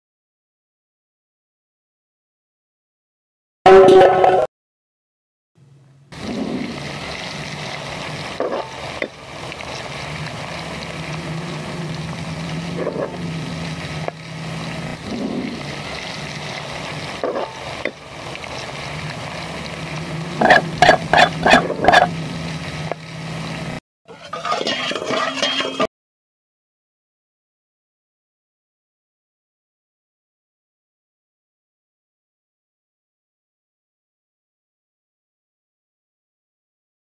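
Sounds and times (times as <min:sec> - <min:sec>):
spices sizzling in a pan: 0:06.5 - 0:25.8
ladle and lid clinking on pot: 0:24.2 - 0:25.9.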